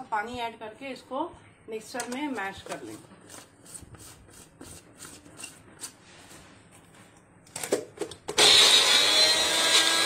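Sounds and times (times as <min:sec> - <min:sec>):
mixer grinder motor whining: 0:08.4 - 0:10.0.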